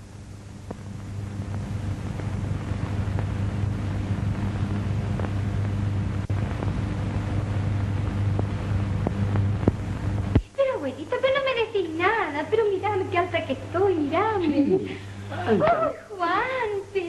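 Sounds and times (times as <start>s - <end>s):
film soundtrack hum and hiss: 0.0s - 17.0s
faint clicks and pops: 0.6s - 10.6s.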